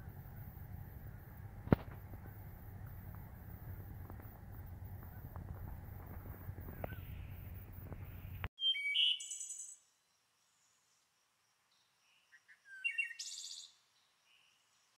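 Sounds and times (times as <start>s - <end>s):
low rumble: 0.0s - 8.5s
high bird chirps: 4.9s - 9.8s.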